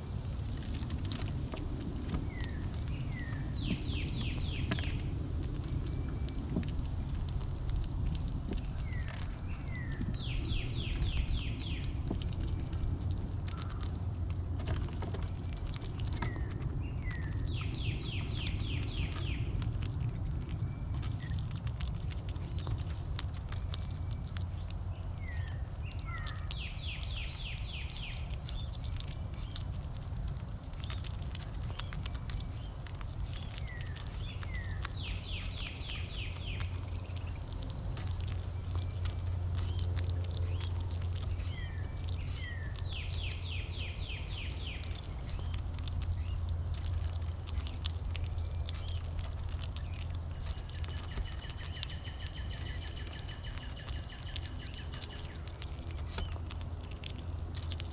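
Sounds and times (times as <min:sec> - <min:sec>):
low background rumble: 0:00.0 - 0:57.9
squirrel cracking seeds: 0:00.0 - 0:57.9
songbird whistled song: 0:02.3 - 0:05.1, 0:08.7 - 0:11.9, 0:16.2 - 0:19.7, 0:20.4 - 0:21.5, 0:22.4 - 0:29.6, 0:31.7 - 0:37.4, 0:38.5 - 0:46.4, 0:49.8 - 0:56.4.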